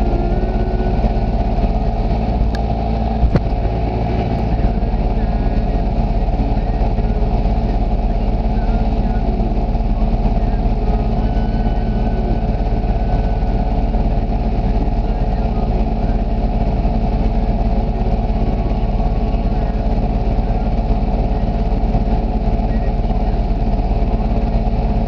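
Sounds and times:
atv engine idling: 0.0s - 25.0s.

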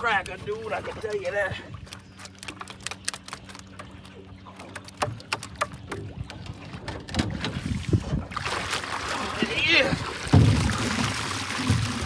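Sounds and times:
boat motor idling: 0.0s - 7.6s
water splashing: 0.0s - 12.0s
line knocking against boat: 3.7s - 7.6s, 10.2s - 12.0s.

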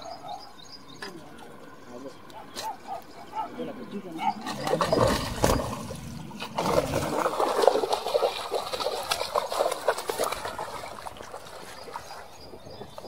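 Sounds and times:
fish splashing in water: 4.4s - 12.6s.

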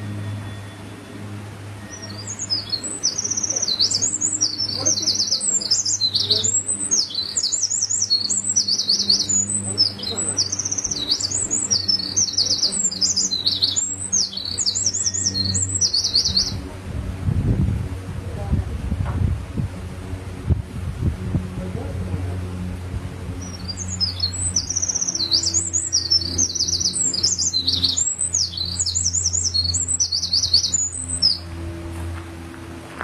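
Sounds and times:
bird singing rapid trills: 0.0s - 16.7s, 22.2s - 31.9s.

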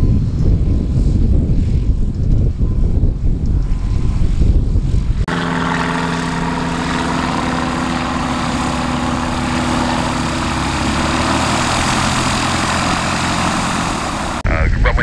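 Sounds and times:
aircraft piston engine idling: 5.3s - 15.0s.

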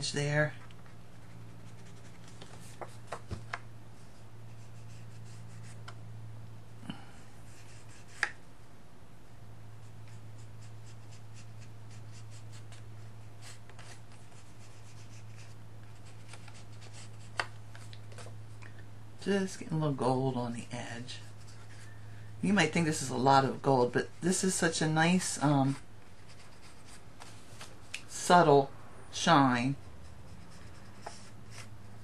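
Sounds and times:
fingertip rubbing paper: 0.8s - 2.9s, 4.5s - 5.9s, 10.0s - 17.4s, 25.6s - 27.0s.

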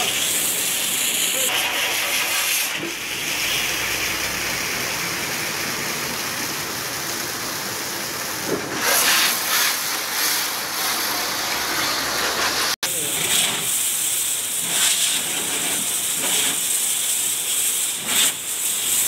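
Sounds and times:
water spraying from hose: 0.0s - 19.0s.

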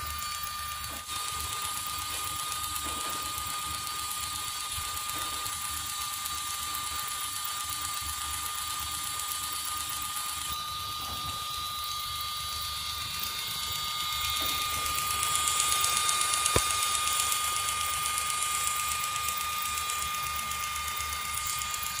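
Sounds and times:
small motor whining: 0.0s - 22.0s
sharp click: 14.3s - 17.2s.

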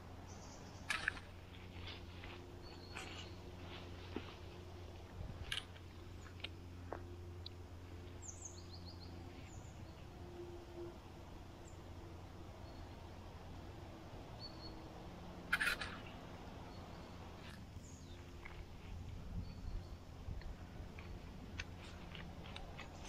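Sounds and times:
faint woodland ambience: 0.0s - 23.0s
crunch or rustle: 0.7s - 7.0s, 20.9s - 23.0s.

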